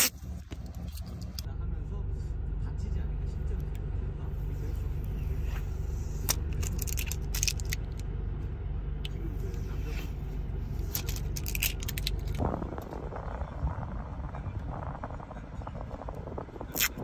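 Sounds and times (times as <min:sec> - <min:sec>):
car engine hum: 0:00.0 - 0:17.0
plastic film peeling and crackling: 0:06.2 - 0:07.8, 0:10.9 - 0:12.4.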